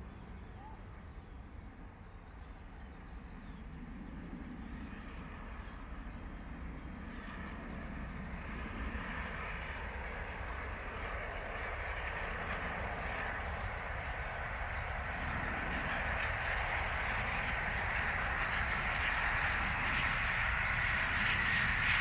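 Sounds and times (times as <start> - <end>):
train running noise: 11.6 - 22.0.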